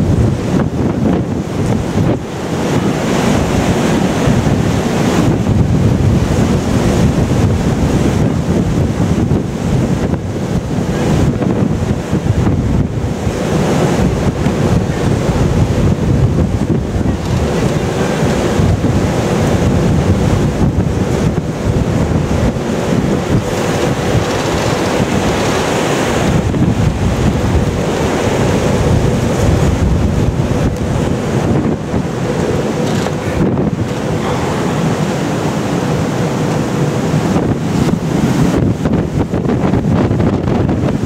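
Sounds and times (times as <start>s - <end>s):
heavy seas rushing: 0.0s - 41.0s
water washing along a hull: 0.0s - 41.0s
wind buffeting the microphone: 0.0s - 41.0s.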